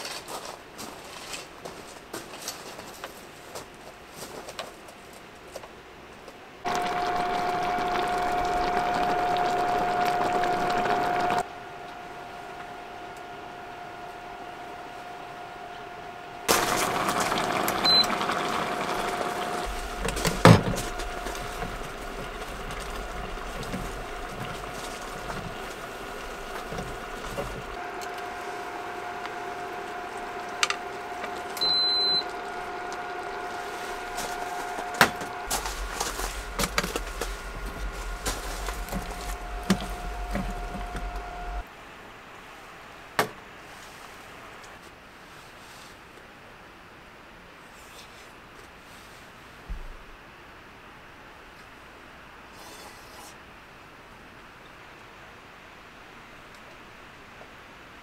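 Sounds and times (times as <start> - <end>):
stew bubbling: 6.7 - 11.4, 16.4 - 41.6
steady whine: 6.7 - 41.7.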